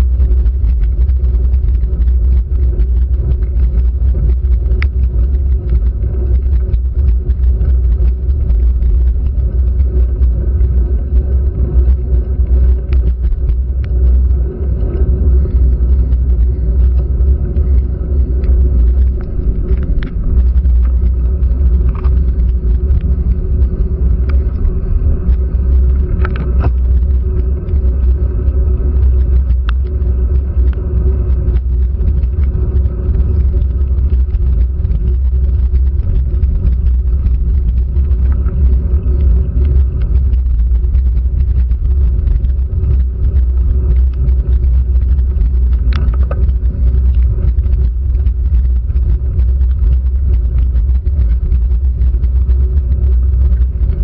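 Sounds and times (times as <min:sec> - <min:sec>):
faint steady hum: 0:00.0 - 0:54.0
raindrops clicking on housing: 0:00.0 - 0:54.0
wind and road rumble: 0:00.0 - 0:54.0.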